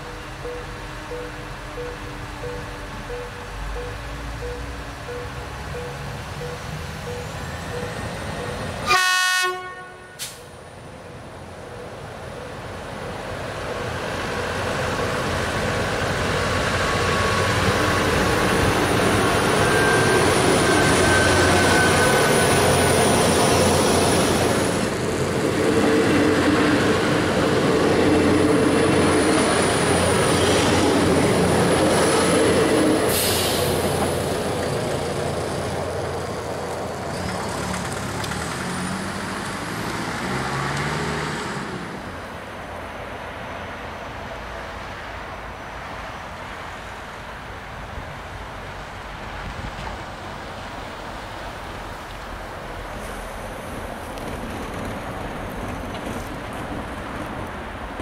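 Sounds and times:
diesel train running past: 0.0 - 58.0
van engine pulling away: 37.1 - 42.1.

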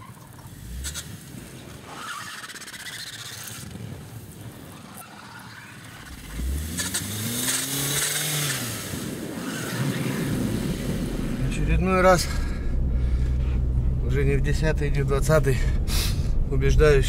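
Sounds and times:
snow hissing: 0.5 - 11.6
car engine revving: 5.9 - 17.0.

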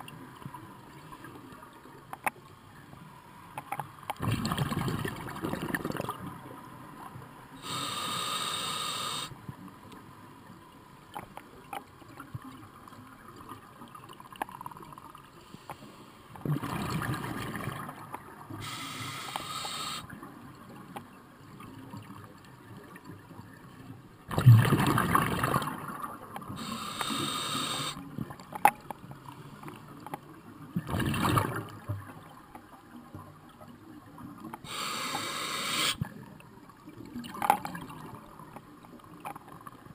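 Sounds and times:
quiet gurgling: 0.0 - 39.9
inhaled breath hiss: 7.6 - 9.4, 18.6 - 20.1, 26.6 - 28.0, 34.6 - 36.1.

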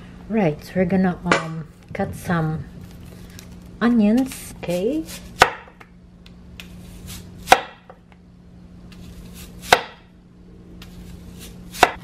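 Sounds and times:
knife crackling through onion: 10.8 - 12.0.

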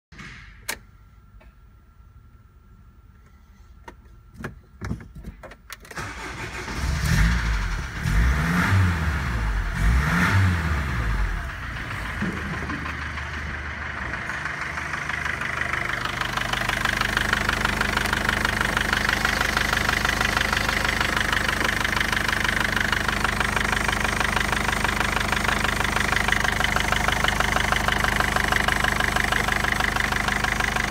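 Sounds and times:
diesel engine revving and idling: 6.0 - 30.9
fast engine ticking: 9.6 - 30.9.

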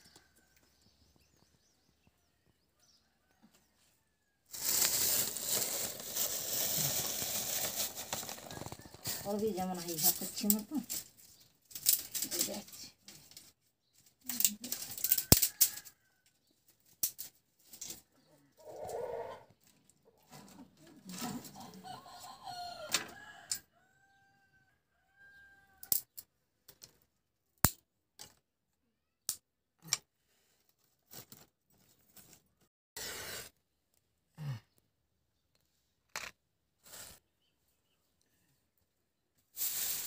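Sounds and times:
chicken calls: 18.0 - 25.9.

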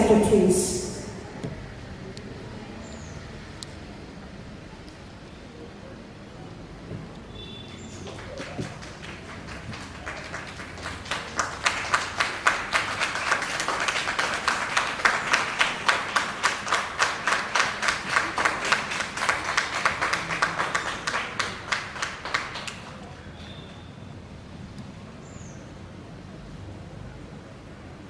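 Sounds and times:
audience applauding: 7.7 - 23.6.

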